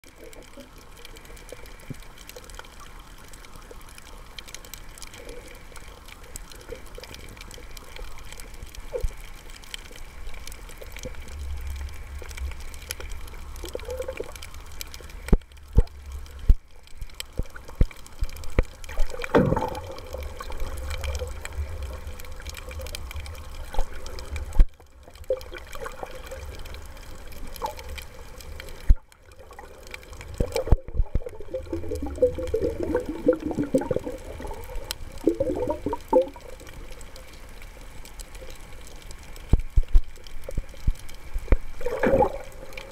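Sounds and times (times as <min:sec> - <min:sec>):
low rumble of water movement: 0:00.0 - 0:42.9
sharp knocks and pops: 0:18.5 - 0:19.9.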